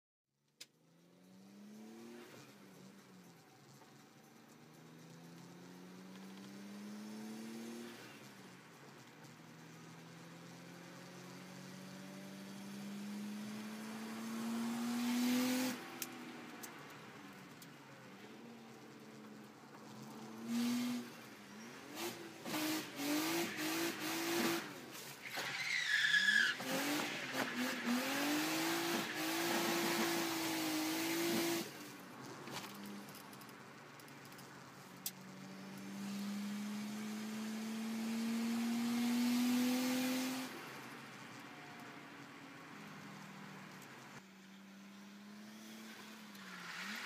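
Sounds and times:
car engine revving: 0.8s - 33.4s, 34.0s - 41.4s
tyres squealing: 25.2s - 30.1s.

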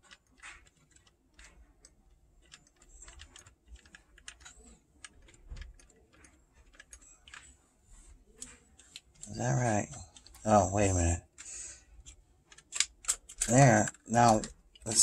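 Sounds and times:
clicks and taps of cassette mechanism: 11.3s - 15.0s.

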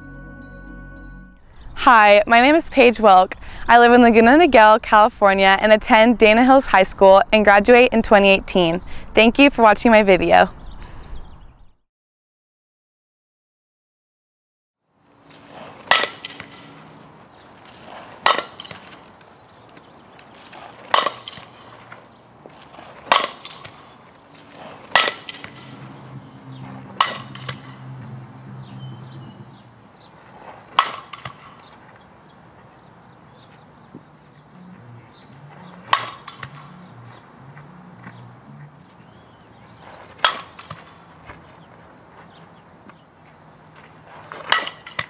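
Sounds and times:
bat hitting balls: 15.7s - 17.0s, 18.2s - 19.2s, 20.6s - 21.9s, 23.0s - 26.0s, 26.9s - 27.8s, 30.7s - 31.8s, 35.6s - 37.2s, 40.0s - 41.2s, 44.3s - 45.0s.

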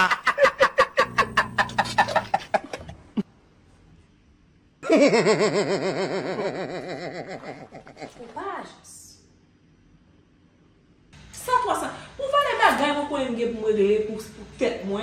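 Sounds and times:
person laughing: 0.0s - 3.0s, 4.8s - 8.2s.

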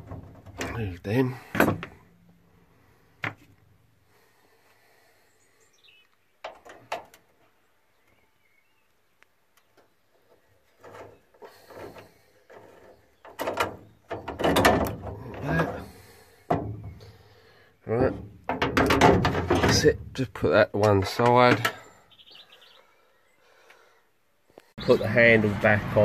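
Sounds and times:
knocks and rattles: 0.0s - 2.0s, 6.4s - 7.3s, 10.3s - 17.1s, 17.9s - 21.8s
metal latch clicks and clanks: 13.2s - 15.8s, 18.1s - 20.0s.

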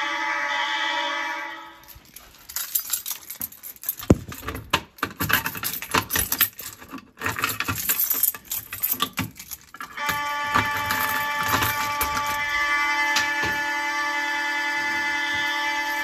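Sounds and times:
fire alarm signal: 0.0s - 2.0s, 10.0s - 16.0s
keys jangling and clinking: 1.8s - 12.5s.

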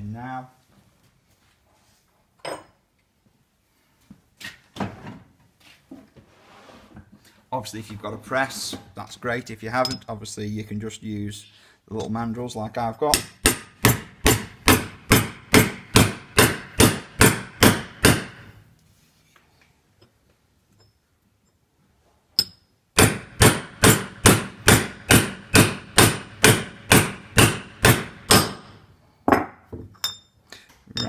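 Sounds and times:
hammer striking steel: 13.1s - 18.6s, 22.4s - 28.8s.

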